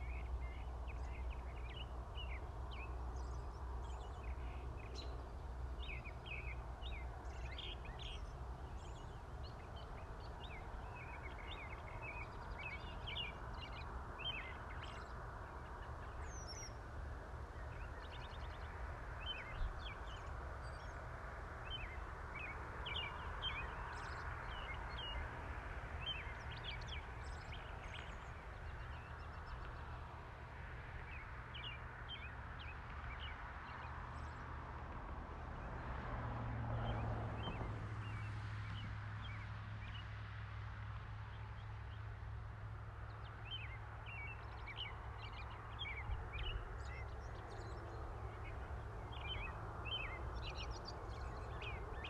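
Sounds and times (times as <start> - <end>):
birds chirping: 0.0 - 16.8, 21.6 - 30.1, 43.1 - 52.0.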